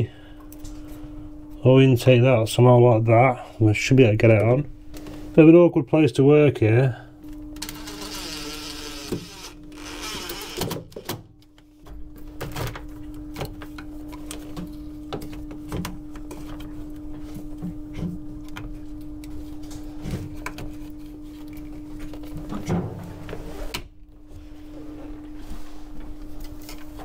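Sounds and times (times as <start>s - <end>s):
steady low hum: 0.0s - 27.0s
cordless drill driving screws: 7.6s - 10.8s.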